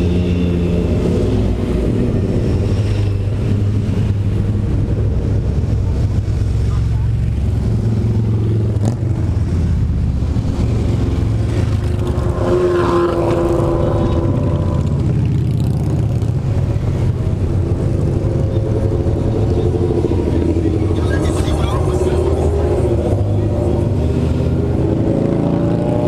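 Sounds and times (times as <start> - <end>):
motorcycles riding by: 0.0 - 26.0.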